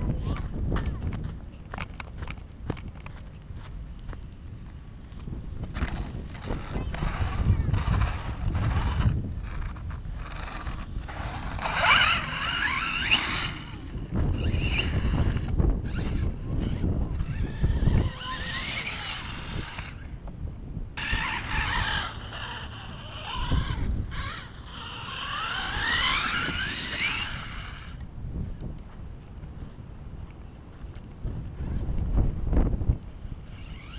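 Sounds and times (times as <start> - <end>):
low wind rumble on microphone: 0.0 - 33.9
rc car motor whining: 5.7 - 20.1, 21.0 - 28.0, 33.4 - 33.9.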